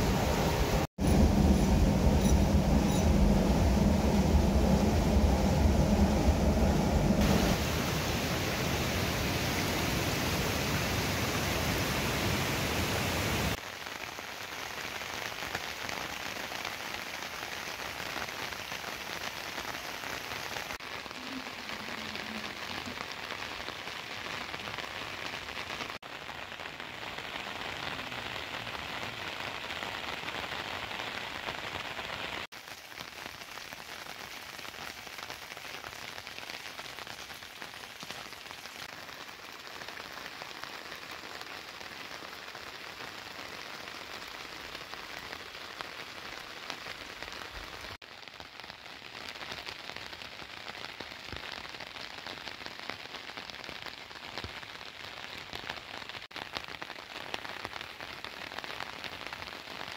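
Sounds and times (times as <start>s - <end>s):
low rumble: 0.0s - 9.2s
steady rain falling: 0.0s - 59.9s.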